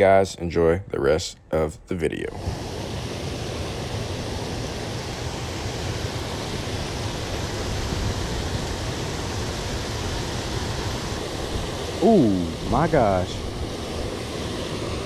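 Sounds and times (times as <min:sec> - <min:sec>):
water rushing over spillway: 0:02.4 - 0:15.0.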